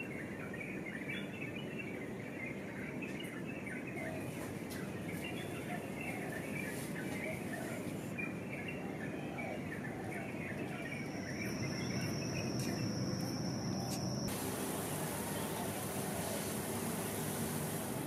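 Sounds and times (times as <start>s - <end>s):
birds chirping: 0.0s - 18.0s
insect high trill: 11.1s - 15.9s
steady hiss: 14.2s - 18.0s.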